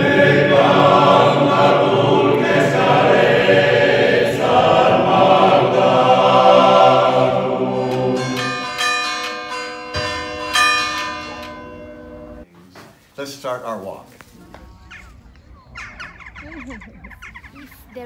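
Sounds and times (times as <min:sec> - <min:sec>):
choir singing held chords: 0:00.0 - 0:12.5
church bells ringing: 0:07.0 - 0:12.5.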